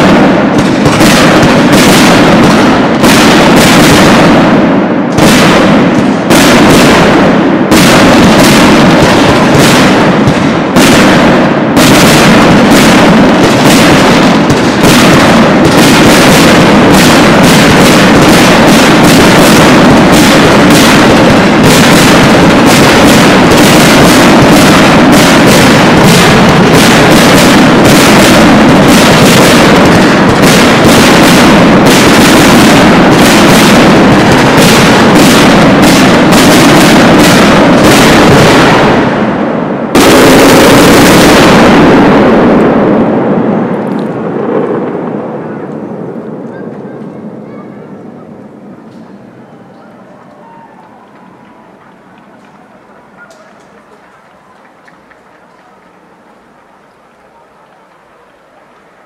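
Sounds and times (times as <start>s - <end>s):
firework shells bursting: 0.0s - 43.1s.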